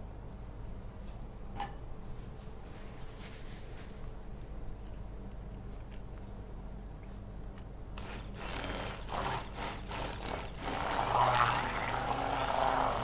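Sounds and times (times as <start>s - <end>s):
electric kitchen mixer running: 8.0s - 13.0s.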